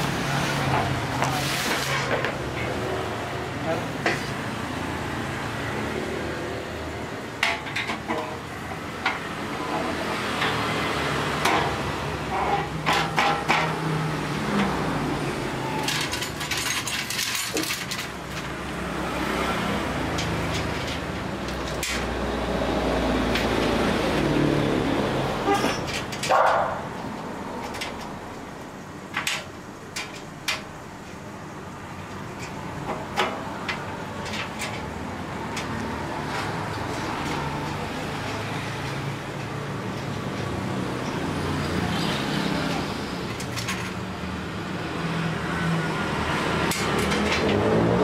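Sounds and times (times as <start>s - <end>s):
metal parts clicking and clattering: 15.8s - 18.6s, 25.5s - 26.4s, 29.1s - 30.7s, 32.0s - 36.5s, 43.3s - 44.0s, 46.6s - 47.7s.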